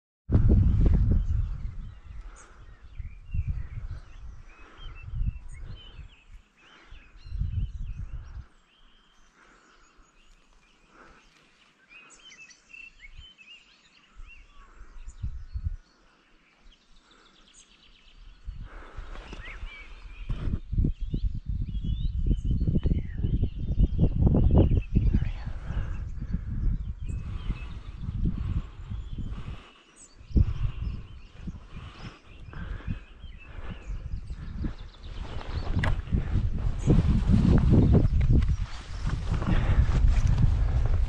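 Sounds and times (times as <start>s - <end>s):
wind buffeting microphone: 0.3s - 8.8s, 14.1s - 15.9s, 18.1s - 41.0s
small birds chirping: 0.4s - 41.0s.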